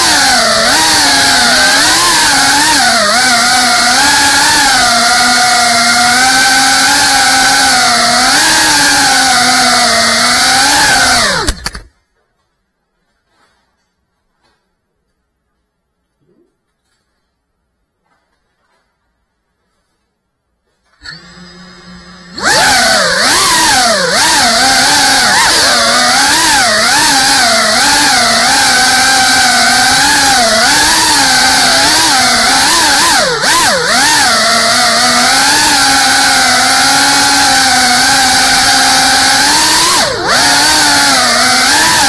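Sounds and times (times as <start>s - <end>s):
drone motors buzzing whine: 0.0s - 11.9s, 21.0s - 42.0s.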